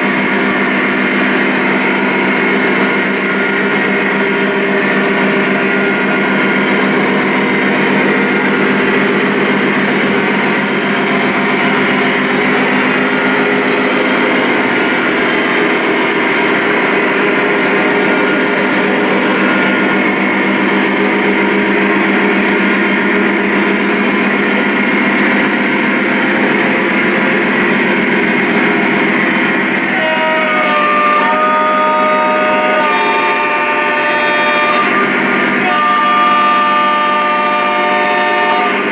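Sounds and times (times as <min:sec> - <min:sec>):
diesel engine drone: 0:00.0 - 0:38.9
train horn chord: 0:29.8 - 0:38.9.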